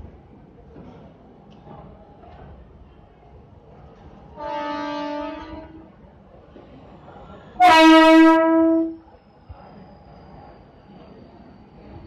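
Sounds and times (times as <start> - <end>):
electric train horn blasts: 4.4 - 5.8, 7.6 - 9.0.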